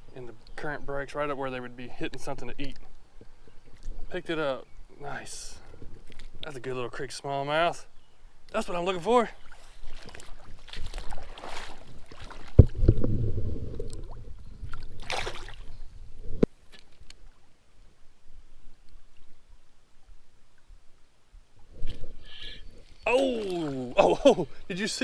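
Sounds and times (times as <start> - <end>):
water splashing and sloshing: 8.6 - 17.9, 21.6 - 24.9.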